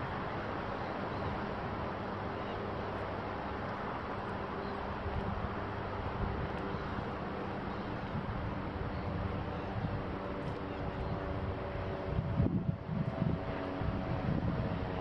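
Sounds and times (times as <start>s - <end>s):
highway traffic: 0.0s - 15.0s
wind on the microphone: 4.6s - 15.0s.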